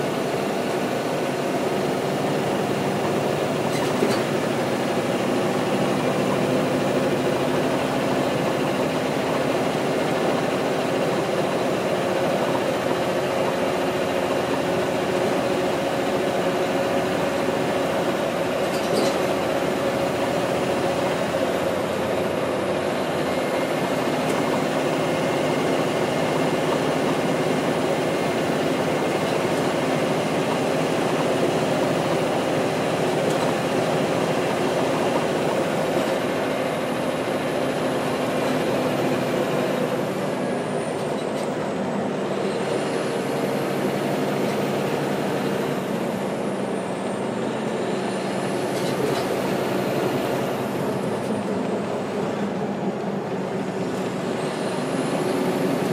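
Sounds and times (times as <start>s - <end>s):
bus diesel engine running: 0.0s - 55.9s.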